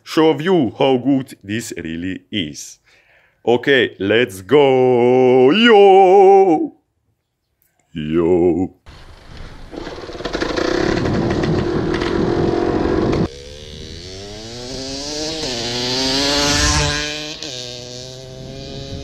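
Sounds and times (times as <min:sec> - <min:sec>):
wind noise: 0:08.9 - 0:14.0, 0:18.3 - 0:19.0
dirt motorcycle engine: 0:08.9 - 0:19.0.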